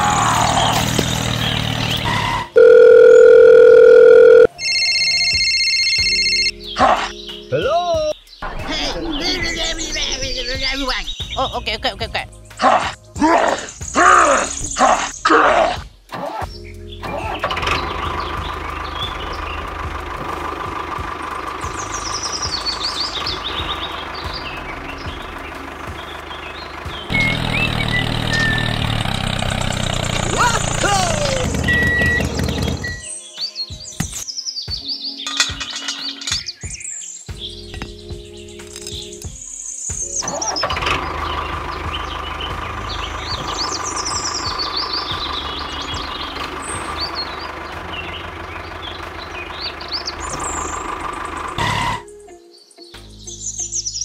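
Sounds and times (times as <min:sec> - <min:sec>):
loud electronic beep: 0:02.2 - 0:06.4, 0:31.6 - 0:33.1
deep engine idle: 0:17.3 - 0:33.0, 0:40.4 - 0:52.1
small engine ticking: 0:17.5 - 0:33.0.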